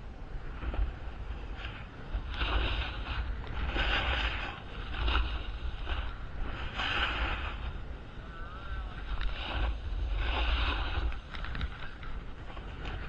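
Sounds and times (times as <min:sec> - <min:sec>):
wind rumbling on microphone: 0:00.0 - 0:13.0
ski edges scraping snow: 0:01.6 - 0:07.7.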